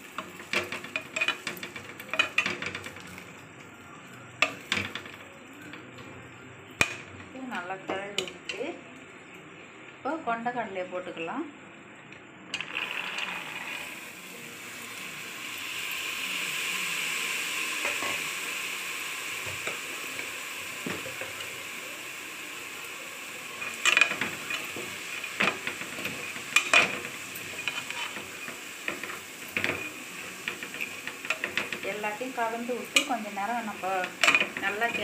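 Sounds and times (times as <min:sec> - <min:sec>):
food sizzling in pot: 0:00.0 - 0:09.0, 0:12.5 - 0:35.0.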